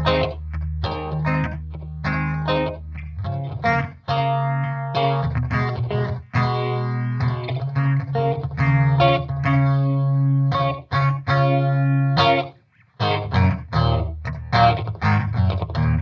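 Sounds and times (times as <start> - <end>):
electric guitar with phaser: 0.0 - 16.0.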